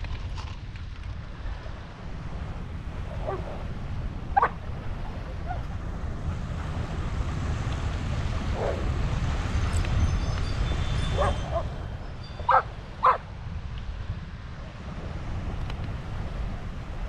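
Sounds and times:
dog barking: 3.2s - 3.6s, 4.4s - 4.6s, 11.1s - 11.7s, 12.5s - 13.2s.

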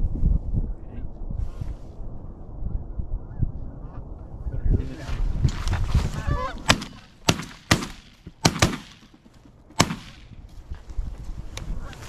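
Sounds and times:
shotgun shots: 6.6s - 10.4s.

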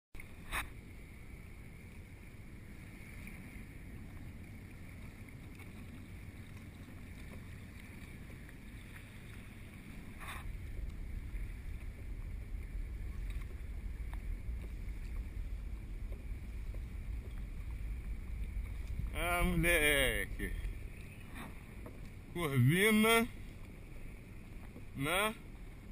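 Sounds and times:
water lapping around kayak: 0.2s - 25.9s
wind buffeting microphone: 0.3s - 25.9s.

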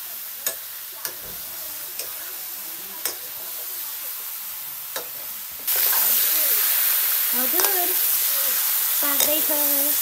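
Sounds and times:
meat sizzling in a wok: 0.0s - 10.0s
metal spatula clicking on pan: 0.4s - 1.2s, 2.0s - 2.2s, 3.0s - 3.2s, 9.2s - 9.5s.

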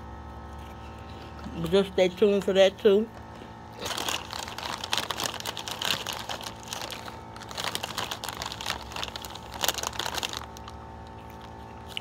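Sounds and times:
snack bag crinkling: 3.2s - 12.0s.

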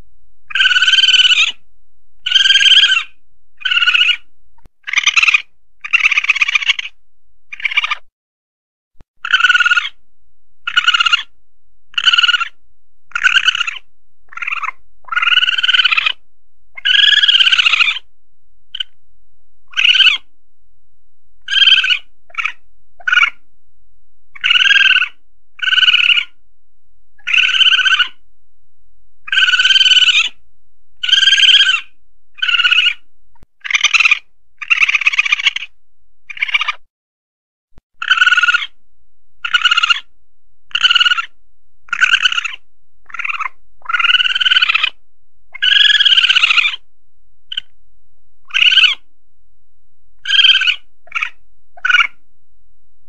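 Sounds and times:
civet high-pitched cries: 0.5s - 1.6s, 2.2s - 8.1s, 9.2s - 10.0s, 10.6s - 16.2s, 16.8s - 18.1s, 18.7s - 19.0s, 19.6s - 20.3s, 21.4s - 23.4s, 24.3s - 26.4s, 27.2s - 28.2s, 29.2s - 30.4s, 31.0s - 36.9s, 38.0s - 38.8s, 39.4s - 40.1s, 40.7s - 46.9s, 47.5s - 47.8s, 48.4s - 49.1s, 50.2s - 52.2s.

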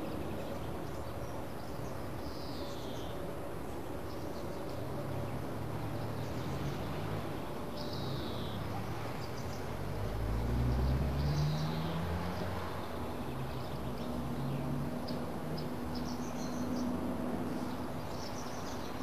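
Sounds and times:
birdsong: 0.0s - 19.0s.

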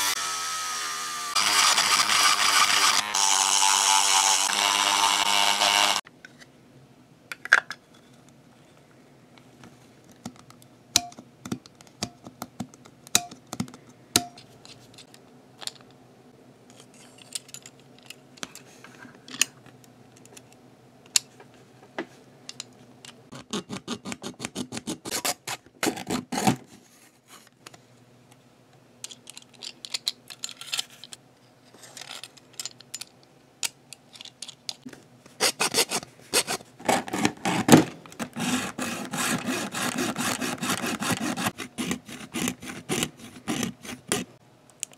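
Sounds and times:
hacksaw cutting plastic: 0.0s - 6.0s, 23.3s - 26.6s, 35.4s - 44.4s
plastic parts clicking: 29.0s - 31.2s, 31.9s - 34.9s.

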